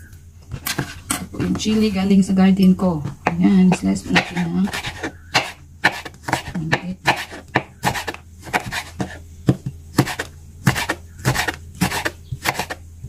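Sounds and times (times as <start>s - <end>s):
knife slicing on wooden cutting board: 4.1s - 9.2s, 10.0s - 12.8s.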